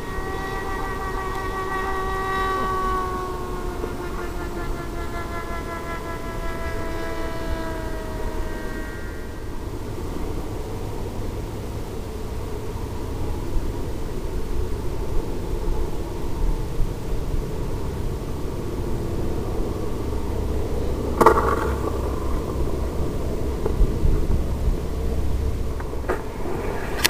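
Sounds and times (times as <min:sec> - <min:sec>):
wind noise rushing: 0:13.2 - 0:27.0.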